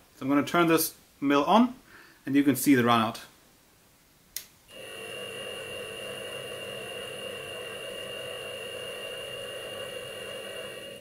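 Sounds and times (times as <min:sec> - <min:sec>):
milling machine running: 0:04.7 - 0:11.0
steady high tone: 0:04.7 - 0:11.0.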